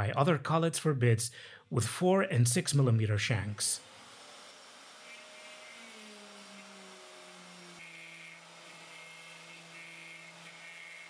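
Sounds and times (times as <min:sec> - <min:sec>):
cnc spindle milling hum: 0:03.8 - 0:11.0.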